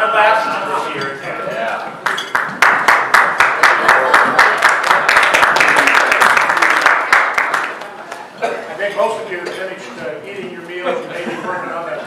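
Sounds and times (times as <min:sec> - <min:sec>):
people applauding: 0:02.0 - 0:08.4.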